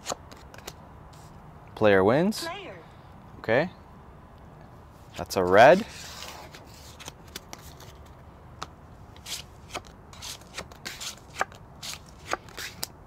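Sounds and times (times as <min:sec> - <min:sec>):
cards dealt on wooden table: 0:09.2 - 0:12.9.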